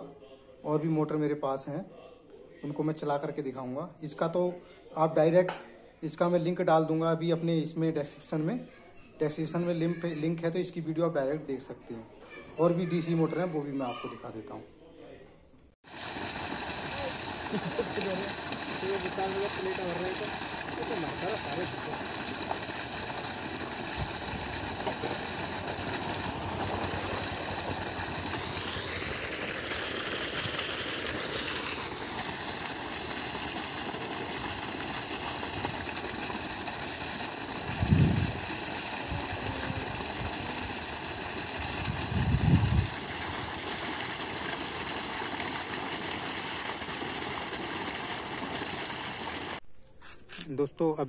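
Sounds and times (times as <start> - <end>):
water gushing from pipe: 15.8 - 49.6
motor and pump humming: 16.0 - 49.6.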